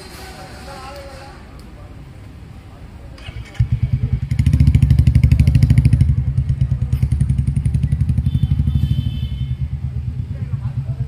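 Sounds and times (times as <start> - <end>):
engine idling: 3.2 - 11.0.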